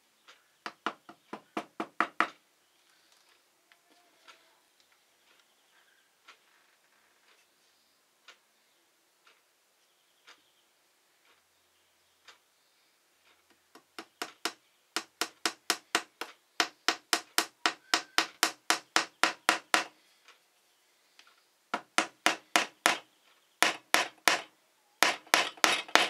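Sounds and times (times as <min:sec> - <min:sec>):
hammer tapping nail into wood: 0:00.7 - 0:02.4, 0:13.8 - 0:20.0, 0:21.8 - 0:23.0, 0:23.6 - 0:26.0.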